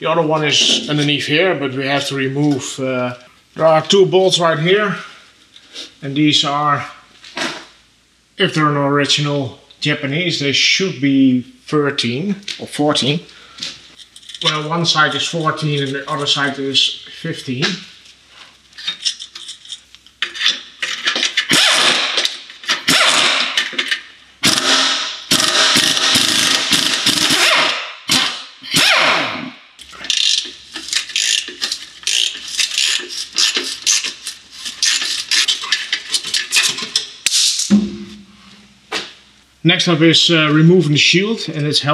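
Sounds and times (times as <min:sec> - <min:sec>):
hand ratchet clicking: 0:20.4 - 0:29.0, 0:29.8 - 0:37.6
cordless power wrench running: 0:21.4 - 0:22.0, 0:22.8 - 0:23.5, 0:24.4 - 0:29.2, 0:30.1 - 0:34.1.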